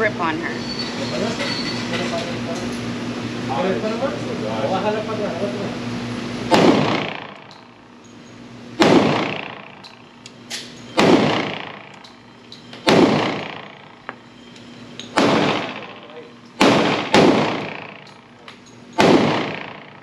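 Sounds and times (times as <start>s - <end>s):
pistol shots reverberating indoors: 6.5s - 7.7s, 8.8s - 10.0s, 11.0s - 12.2s, 12.8s - 14.0s, 15.1s - 16.0s, 16.6s - 18.2s, 19.0s - 20.0s.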